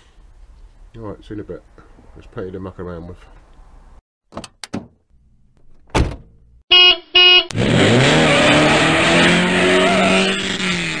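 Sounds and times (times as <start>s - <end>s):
car engine revving loudly: 7.5s - 11.0s.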